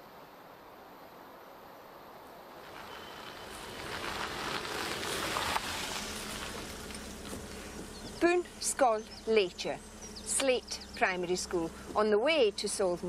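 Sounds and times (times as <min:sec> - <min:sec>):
faint wind: 0:00.0 - 0:13.0
car passing: 0:02.5 - 0:12.6.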